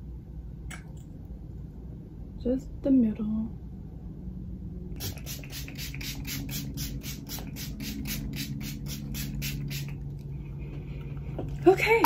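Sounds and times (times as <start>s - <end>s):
spray bottle hissing sprays: 5.0s - 10.1s.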